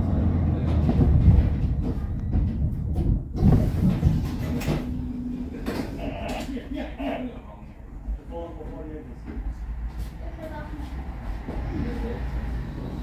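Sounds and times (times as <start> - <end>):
clunks: 0.0 - 6.6
tram rumbling on rails: 0.0 - 13.0.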